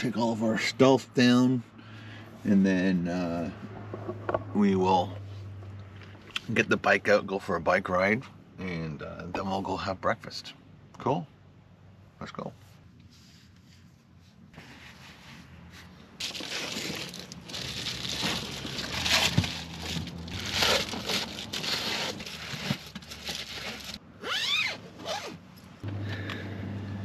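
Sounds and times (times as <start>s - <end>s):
foil insulation crinkling: 16.2s - 24.0s.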